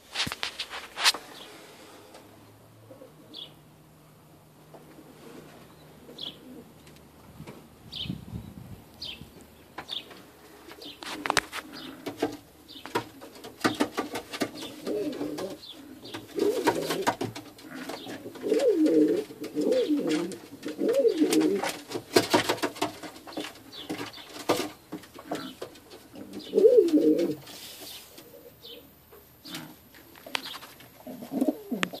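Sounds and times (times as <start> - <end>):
wings flapping and rustling: 0.0 - 1.4, 10.1 - 28.3, 30.0 - 32.0
pigeons cooing: 2.8 - 3.6, 4.9 - 6.9, 10.2 - 21.8, 23.1 - 32.0.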